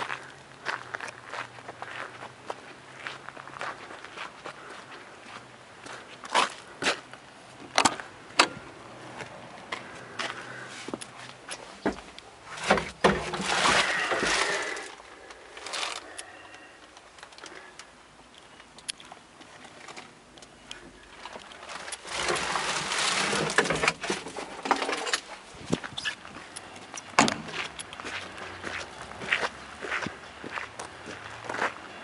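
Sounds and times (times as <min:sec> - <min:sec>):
handling and rustling noise: 0:09.2 - 0:17.7, 0:18.4 - 0:29.4.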